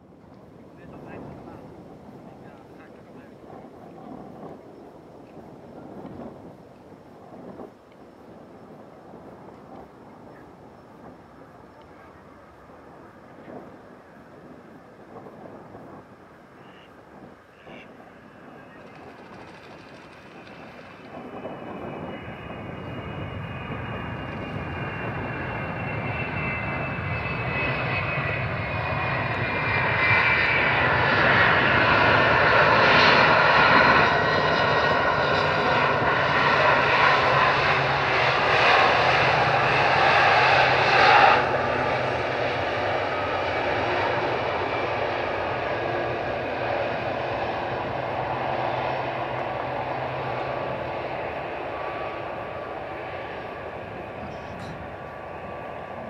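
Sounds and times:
jet engines whining: 11.2s - 56.0s.

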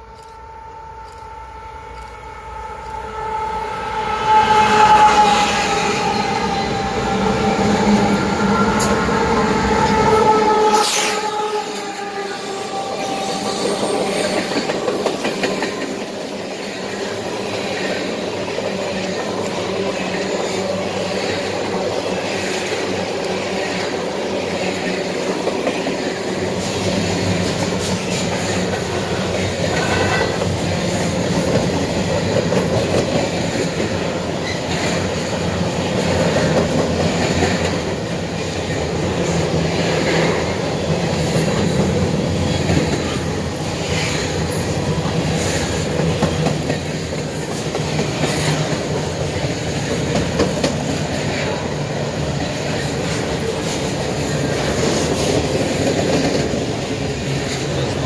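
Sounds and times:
train cars rumbling past: 0.0s - 58.0s
train wheel squeal: 0.0s - 58.0s.

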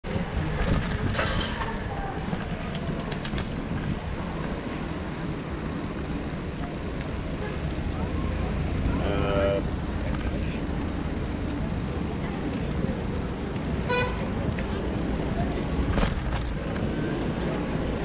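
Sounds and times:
bicycle riding on paving: 1.7s - 8.8s.

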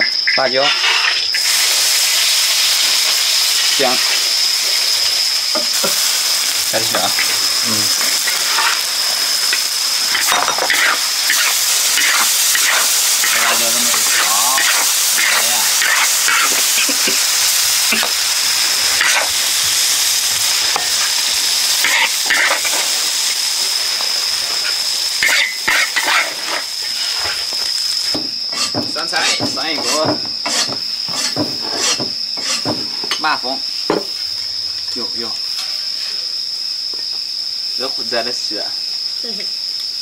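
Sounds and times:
food sizzling in hot oil: 0.0s - 40.0s
metal spatula scraping a wok: 0.6s - 1.5s, 8.0s - 8.9s, 10.1s - 16.8s, 19.0s - 19.4s, 25.2s - 27.4s, 28.5s - 33.2s, 35.5s - 36.2s.

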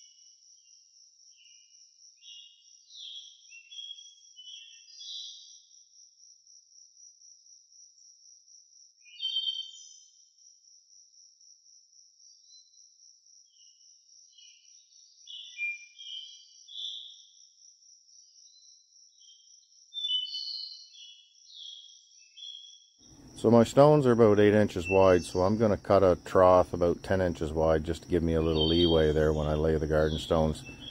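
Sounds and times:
insects trilling: 0.0s - 30.9s
high chirping: 23.1s - 30.9s.

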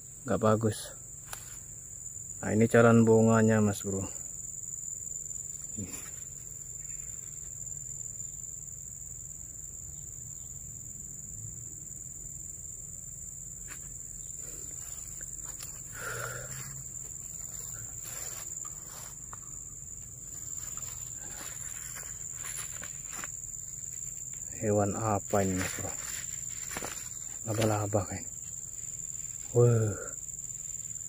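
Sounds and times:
insects trilling: 0.0s - 31.0s
leaves rustling and knocking: 16.9s - 29.6s.

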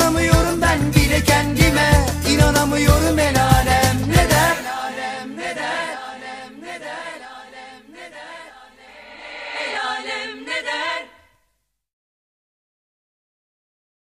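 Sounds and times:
light pop backing music: 0.0s - 4.6s
voices singing in harmony: 0.0s - 11.3s.

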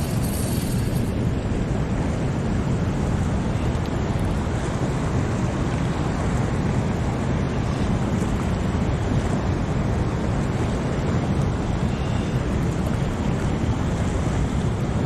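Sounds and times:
turbulent water pouring: 0.0s - 1.3s
wind buffeting microphone: 0.0s - 15.0s.

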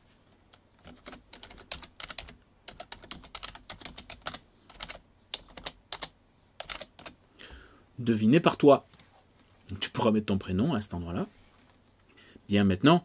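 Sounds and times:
keyboard typing: 0.5s - 7.2s.

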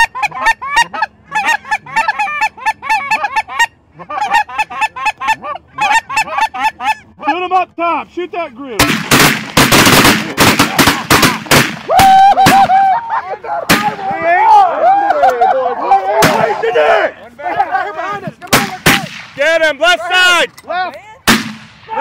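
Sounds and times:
geese honking: 0.0s - 7.5s
shotgun shots: 8.8s - 12.7s, 13.7s - 14.1s, 18.5s - 19.4s, 21.3s - 21.9s.

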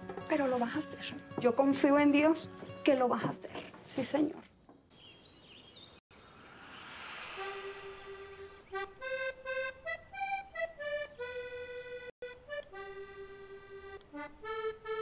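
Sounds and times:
accordion melody: 7.4s - 15.0s.

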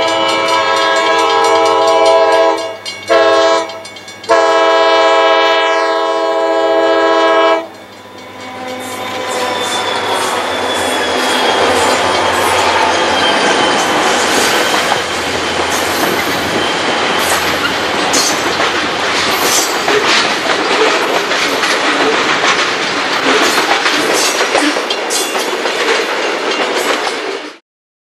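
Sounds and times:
diesel locomotive drone: 0.0s - 25.0s
train wheels rumbling on rails: 0.0s - 27.6s
clickety-clack over rail joints: 7.7s - 27.6s.

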